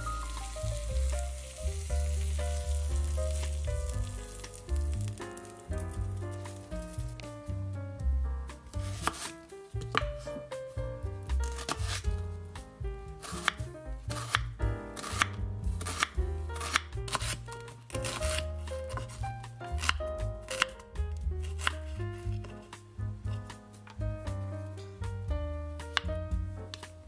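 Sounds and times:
light background music: 0.0s - 27.0s
knife chopping on wooden board: 8.8s - 10.6s, 11.2s - 12.2s, 13.2s - 19.2s, 19.8s - 20.8s, 21.4s - 22.7s.

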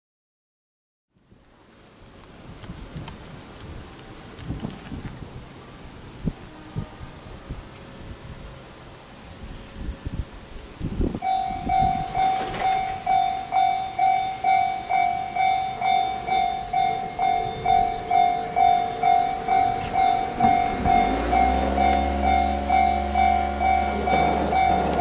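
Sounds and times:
level-crossing electronic bell ringing: 11.2s - 25.0s
low hum with rising tones: 13.2s - 24.9s.

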